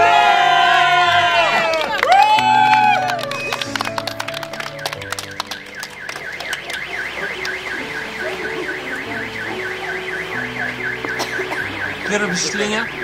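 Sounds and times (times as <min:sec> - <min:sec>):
applause: 0:01.3 - 0:07.6
car alarm warbling: 0:03.3 - 0:13.0.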